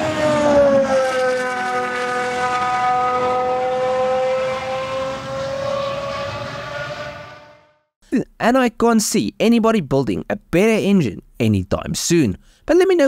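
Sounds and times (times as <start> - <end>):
race car engine at high revs: 0.0 - 7.7.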